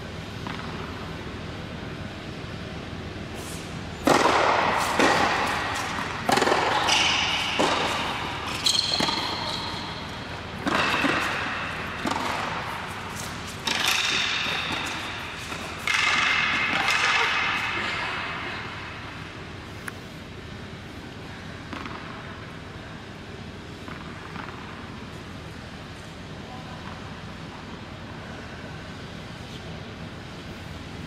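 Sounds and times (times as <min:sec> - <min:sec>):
tennis ball hits and bounces: 0:00.4 - 0:00.9, 0:04.0 - 0:17.8, 0:21.7 - 0:22.2
tennis shoes squeaking on court: 0:04.8 - 0:17.8.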